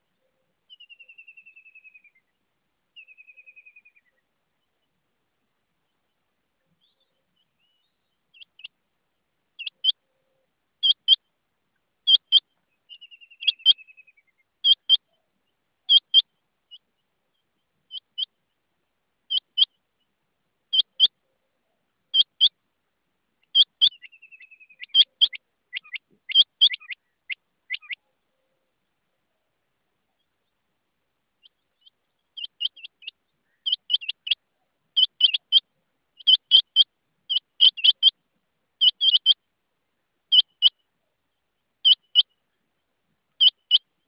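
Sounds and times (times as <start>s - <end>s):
quail calling: 8.3s - 8.8s, 9.6s - 11.2s, 12.0s - 16.9s, 17.9s - 18.4s, 19.3s - 19.8s, 20.7s - 22.6s, 23.4s - 28.8s, 31.4s - 38.2s, 38.8s - 39.4s, 40.3s - 41.1s, 41.8s - 42.4s, 43.3s - 43.9s.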